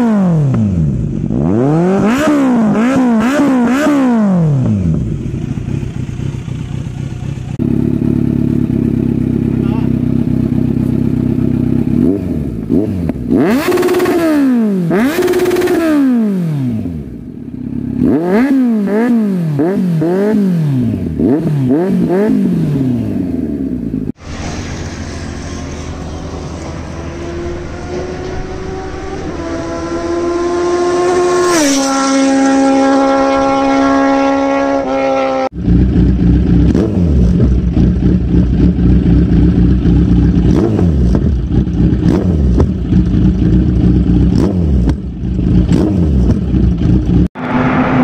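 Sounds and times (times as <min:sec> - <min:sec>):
motorcycle engine revving: 0:00.0 - 0:48.0
steady engine note: 0:22.4 - 0:48.0.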